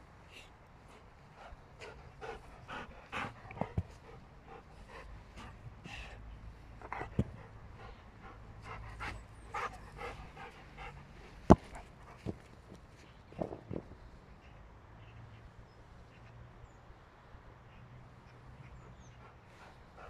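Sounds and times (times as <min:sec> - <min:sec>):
dog panting: 0:00.8 - 0:12.6, 0:18.2 - 0:20.0.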